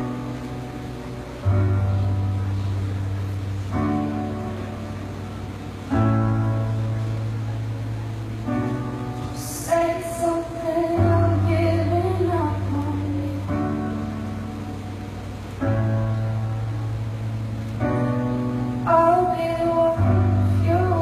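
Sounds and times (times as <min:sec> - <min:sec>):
piano playing slow chords: 0:00.0 - 0:21.0
woman singing: 0:09.4 - 0:14.0, 0:18.8 - 0:21.0.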